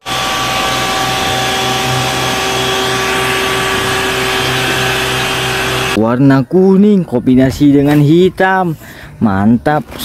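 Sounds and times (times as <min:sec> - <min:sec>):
pump whine and throb: 0:00.0 - 0:06.0
water cannon spraying jet: 0:00.0 - 0:06.0.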